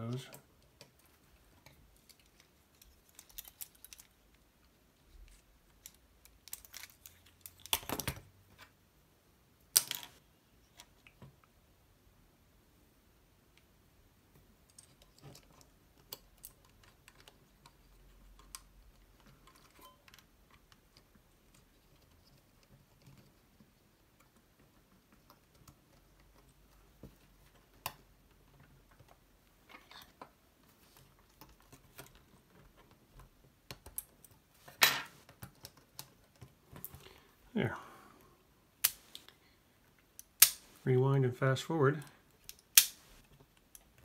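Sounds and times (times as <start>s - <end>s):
plastic parts clicking: 1.6s - 4.3s, 5.3s - 8.2s.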